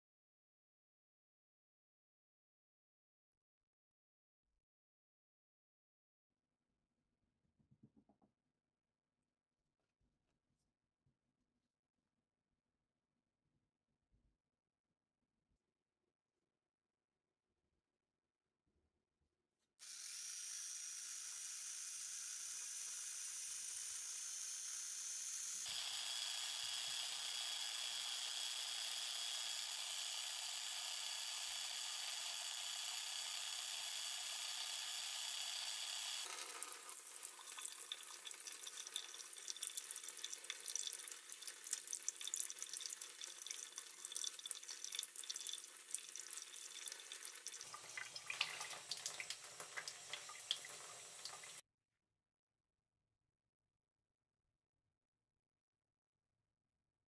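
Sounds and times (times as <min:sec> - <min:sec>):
tap water running and splashing: 0:25.6 - 0:51.6.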